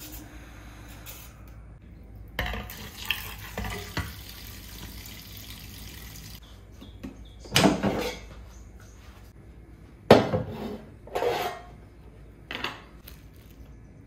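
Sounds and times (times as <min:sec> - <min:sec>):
tap water running and splashing: 0:02.7 - 0:06.4.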